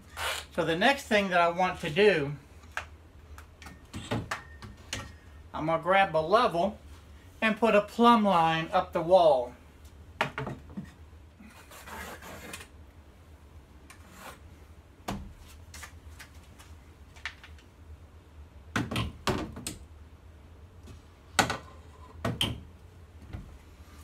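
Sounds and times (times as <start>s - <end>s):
low steady hum: 0.0s - 24.0s
pencil scratching on drywall: 11.5s - 12.7s.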